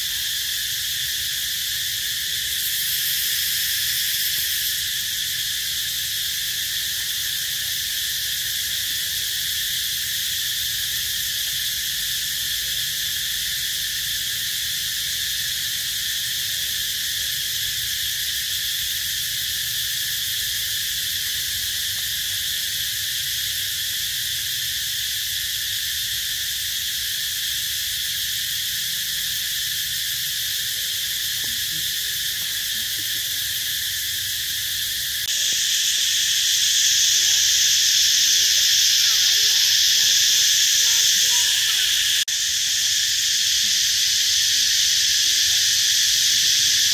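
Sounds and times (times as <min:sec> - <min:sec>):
high-pitched insect drone: 0:00.0 - 0:46.9.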